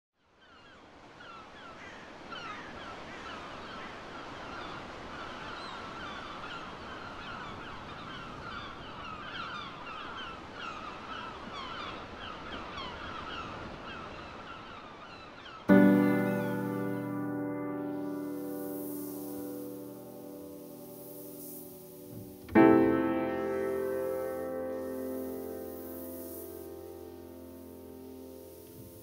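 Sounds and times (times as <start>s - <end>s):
flock of birds calling: 0.4s - 17.3s
steady hiss: 15.6s - 29.0s.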